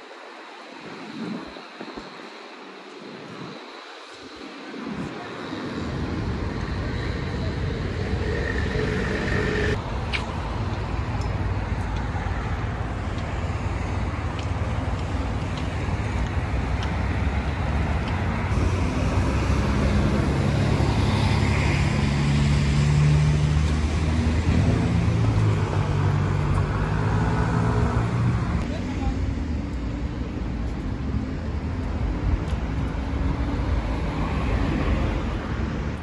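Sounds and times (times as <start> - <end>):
cars passing: 4.2 - 36.0.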